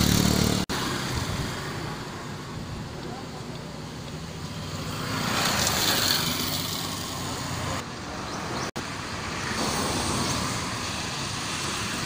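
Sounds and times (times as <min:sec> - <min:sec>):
passing cars and motorbikes: 0:00.0 - 0:12.0.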